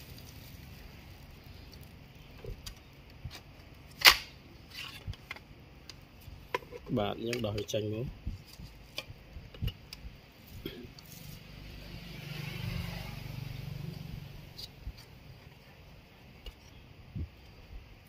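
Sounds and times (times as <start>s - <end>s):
vehicle passing: 10.8s - 14.7s.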